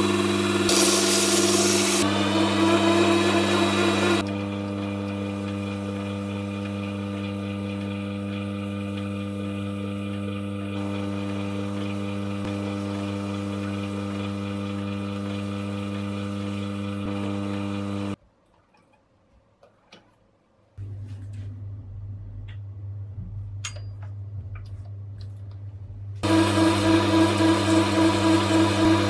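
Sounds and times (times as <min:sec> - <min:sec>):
lathe motor humming: 0:00.0 - 0:18.2, 0:26.2 - 0:29.0.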